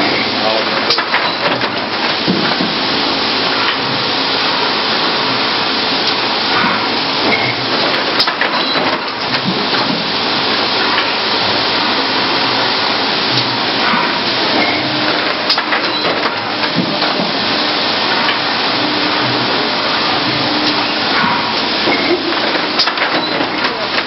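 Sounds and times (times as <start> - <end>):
mechanical knocks: 0.0 - 2.9, 6.5 - 10.2, 13.3 - 24.0
machine clattering: 0.0 - 24.0.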